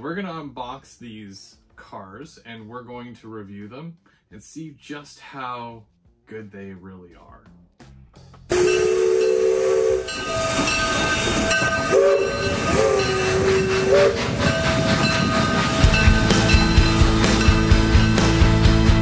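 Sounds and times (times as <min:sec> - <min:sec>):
rock music with driving beat: 0:07.2 - 0:08.6, 0:15.8 - 0:19.0
train hiss and rumble: 0:08.5 - 0:19.0
train horn chord: 0:08.5 - 0:19.0.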